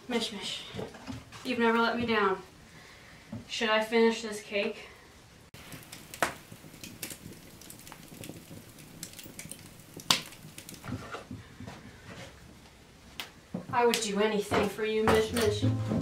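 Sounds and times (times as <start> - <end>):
wood fire crackling: 4.3 - 16.0
sharp fire snap: 5.6 - 11.1.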